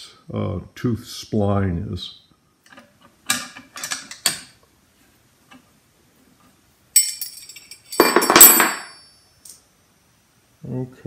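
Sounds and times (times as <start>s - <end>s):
metal clinks ringing: 7.0s - 9.6s
metallic clatter: 7.0s - 9.6s.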